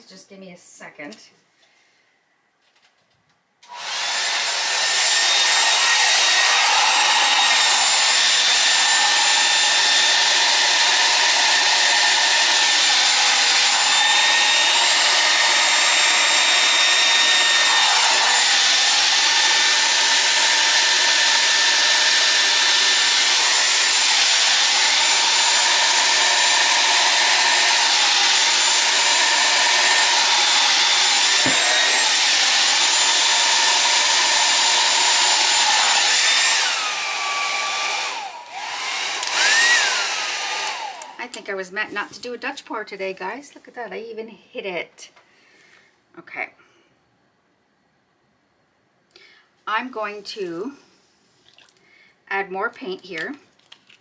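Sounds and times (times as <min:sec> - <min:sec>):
hair dryer blowing: 0:03.6 - 0:41.6.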